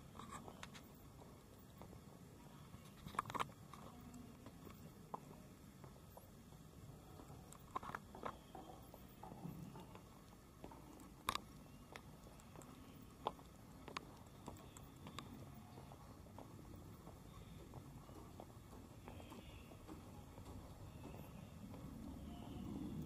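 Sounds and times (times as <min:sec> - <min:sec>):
footsteps on concrete: 0:11.8 - 0:22.5.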